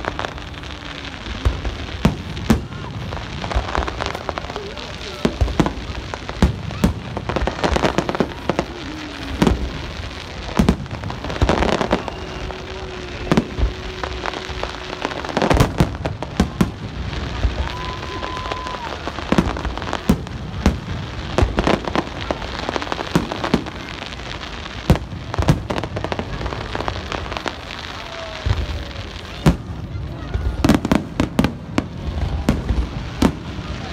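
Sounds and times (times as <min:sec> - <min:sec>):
fireworks bangs: 0:00.0 - 0:33.9
fireworks crackling: 0:00.0 - 0:33.9.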